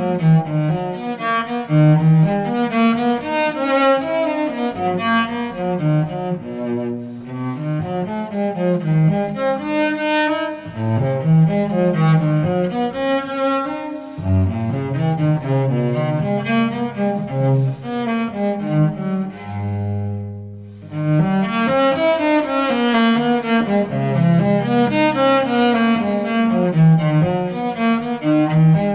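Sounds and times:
gentle instrumental classical music: 0:00.0 - 0:28.9.

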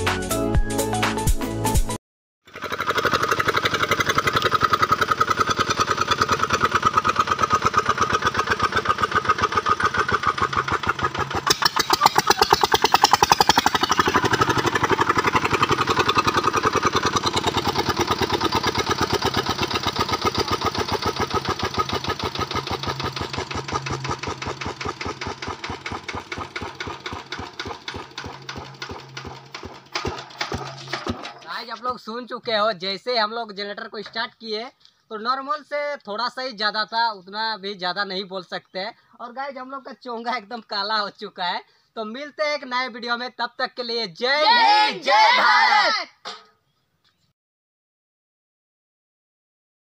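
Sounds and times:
diesel engine chugging through horn: 0:03.4 - 0:27.3.

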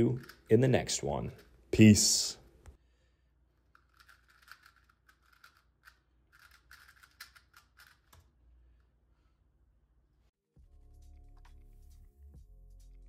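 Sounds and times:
puzzle cube clicking: 0:00.2 - 0:00.5, 0:03.7 - 0:08.3.

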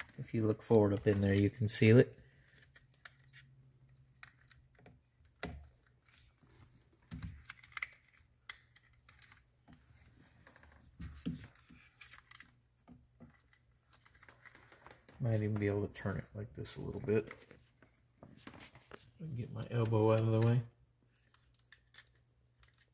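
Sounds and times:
plastic connectors clicking: 0:07.1 - 0:09.5.

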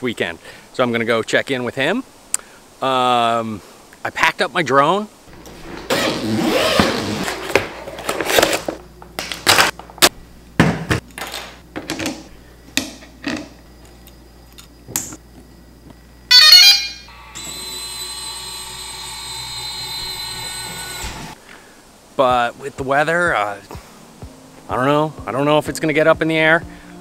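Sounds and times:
rising electronic beeps: 0:16.3 - 0:17.7.

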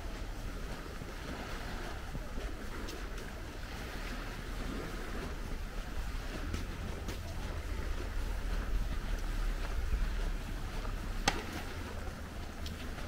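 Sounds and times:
gentle surf: 0:00.0 - 0:13.0
wind: 0:00.0 - 0:13.0
wind rumbling on microphone: 0:00.0 - 0:13.0
faint ticks: 0:06.4 - 0:13.0.

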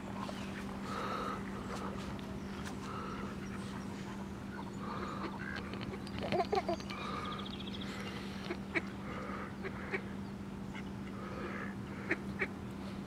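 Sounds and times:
steady low hum: 0:00.0 - 0:13.0
ducks quacking: 0:04.5 - 0:07.3, 0:08.2 - 0:12.6.

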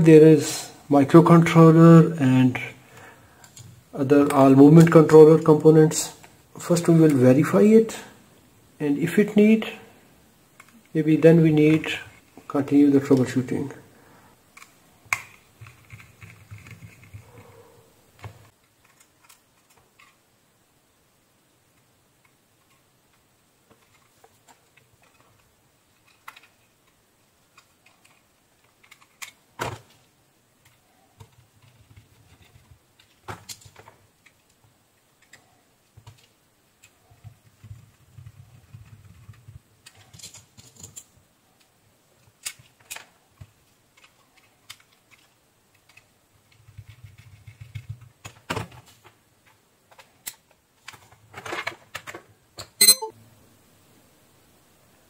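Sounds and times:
plastic clicks and rattles: 0:23.7 - 0:30.0.

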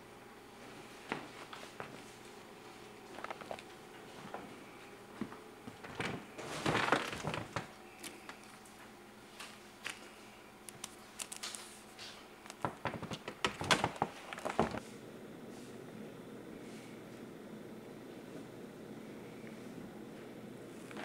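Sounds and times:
paper rustling: 0:03.1 - 0:04.2, 0:05.6 - 0:14.9.

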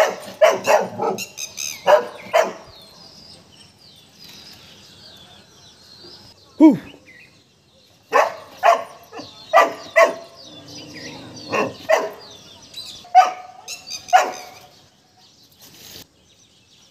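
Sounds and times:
puppy barking: 0:00.0 - 0:02.7, 0:08.1 - 0:10.4, 0:11.5 - 0:12.3, 0:13.1 - 0:14.6.

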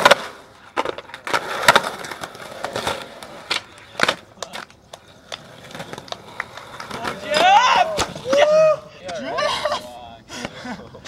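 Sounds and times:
skateboard clacks and knocks: 0:00.0 - 0:08.6
skateboard wheels rolling on concrete: 0:00.0 - 0:11.0.

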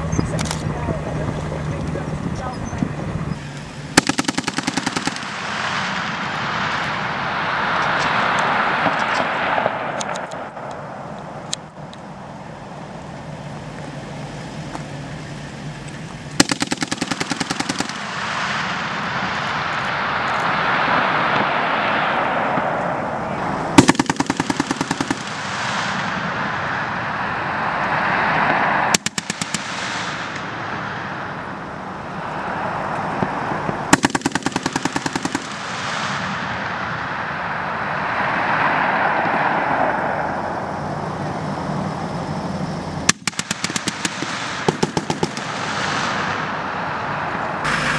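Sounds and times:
vehicles running: 0:00.0 - 0:47.9
machine gun bursts: 0:04.0 - 0:05.5, 0:16.4 - 0:18.1, 0:23.8 - 0:25.4, 0:33.9 - 0:35.7, 0:43.1 - 0:45.8
single gunshot: 0:04.0 - 0:07.1, 0:16.4 - 0:19.5, 0:23.8 - 0:26.4, 0:33.9 - 0:36.7, 0:43.1 - 0:46.6.

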